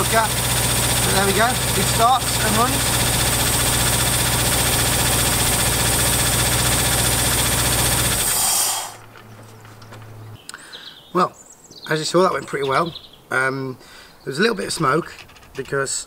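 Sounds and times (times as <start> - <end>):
car engine running: 0.0 - 8.9.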